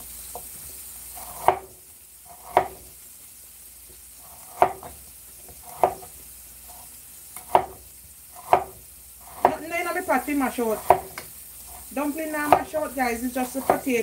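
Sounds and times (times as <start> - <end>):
onions sizzling in frying pan: 0.0 - 14.0
cleaver chopping on wooden board: 1.4 - 1.7, 2.4 - 2.8, 4.5 - 5.0, 5.7 - 6.1, 7.4 - 7.8, 8.4 - 9.6, 10.8 - 11.3, 12.5 - 12.8, 13.5 - 13.9.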